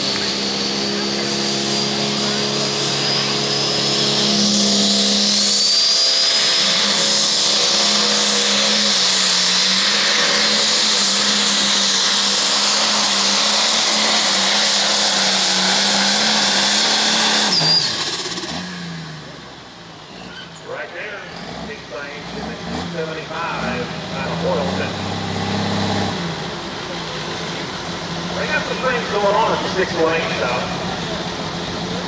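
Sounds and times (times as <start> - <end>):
high turbo whine: 0.0 - 32.0
tractor diesel engine under load: 0.0 - 32.0.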